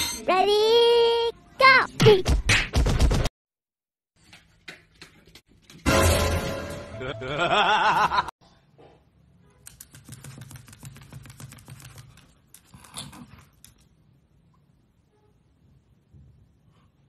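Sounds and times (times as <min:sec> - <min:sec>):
dog claws clicking on tiled floor: 0:04.2 - 0:05.8, 0:09.6 - 0:14.0.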